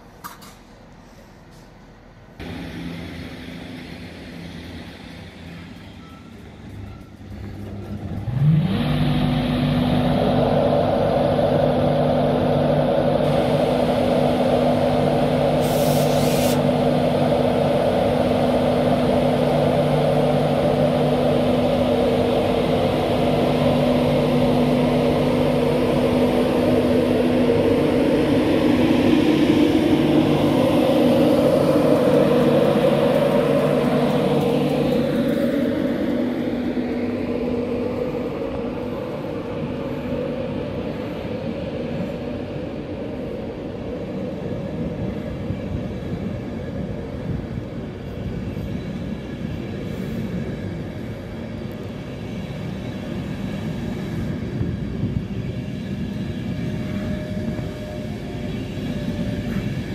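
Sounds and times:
electric locomotive drone with whine: 0.0s - 59.9s
brief high hiss: 15.6s - 16.7s.

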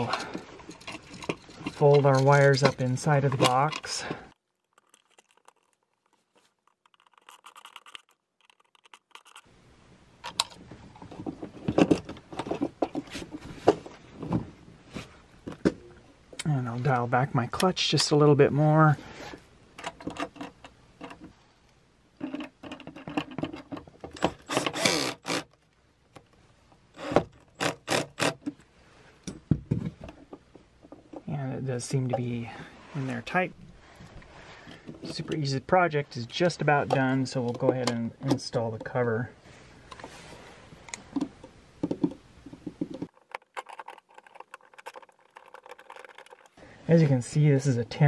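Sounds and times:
screw being driven in: 4.6s - 9.5s, 24.2s - 25.6s, 27.0s - 28.5s, 43.0s - 46.6s
cordless drill driving screws: 24.2s - 25.5s, 27.0s - 28.4s.

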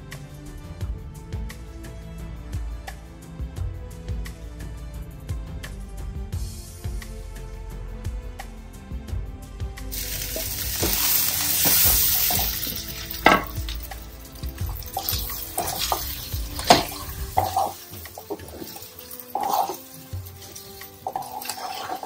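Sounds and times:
food sizzling in a pan: 9.9s - 22.0s
wooden spatula scraping a pan: 9.9s - 22.0s
spatula knocking against pan: 13.2s - 13.8s.

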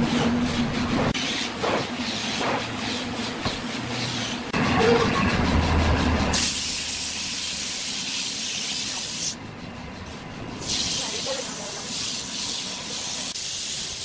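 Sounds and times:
sandpaper hissing on spinning wood: 1.2s - 4.5s, 10.6s - 14.0s.

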